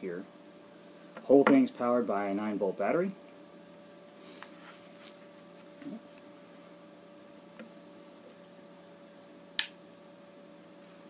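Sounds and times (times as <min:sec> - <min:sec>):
faint steady hum: 0:00.0 - 0:11.0
sharp click: 0:09.6 - 0:09.8.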